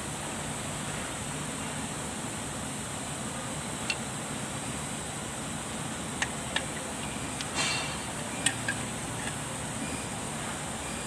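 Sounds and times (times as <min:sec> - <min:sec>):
background hiss: 0:00.0 - 0:11.0
metal parts clicking: 0:07.4 - 0:09.4.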